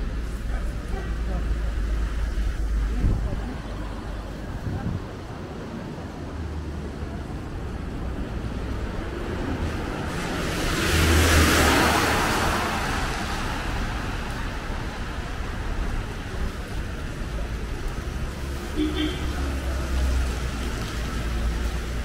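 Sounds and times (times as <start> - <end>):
traffic hum: 0.0 - 22.0
car driving past: 8.5 - 15.2.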